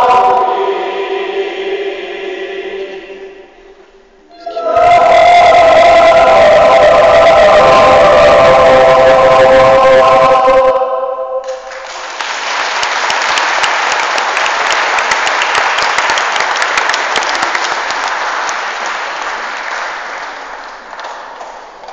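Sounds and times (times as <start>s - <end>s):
choir singing held chord: 0.0s - 11.8s
audience applauding: 11.5s - 21.9s.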